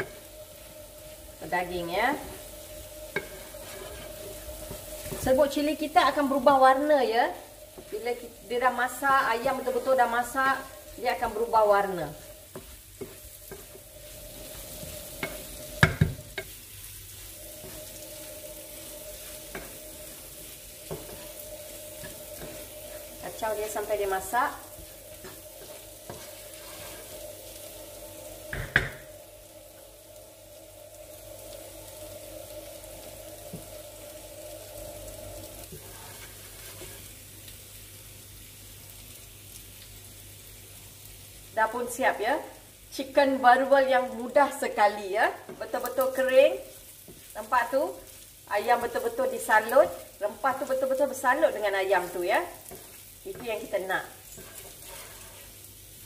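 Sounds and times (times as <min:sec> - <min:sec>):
spatula scraping and knocking pan: 0:00.0 - 0:06.6, 0:09.0 - 0:27.8, 0:28.4 - 0:29.2, 0:35.6 - 0:37.2, 0:50.5 - 0:55.7
steady hum: 0:00.0 - 0:36.0
chicken sizzling in a pan: 0:00.0 - 0:56.0.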